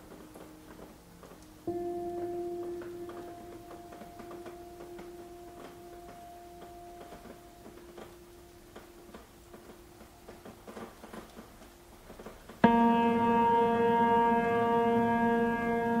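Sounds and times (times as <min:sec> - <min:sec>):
raindrops ticking: 0:00.0 - 0:16.0
held musical note: 0:12.6 - 0:16.0.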